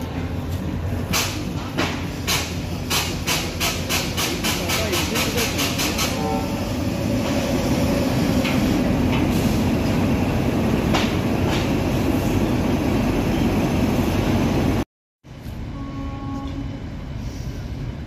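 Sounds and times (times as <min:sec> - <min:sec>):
electric locomotive humming: 0:00.0 - 0:18.0.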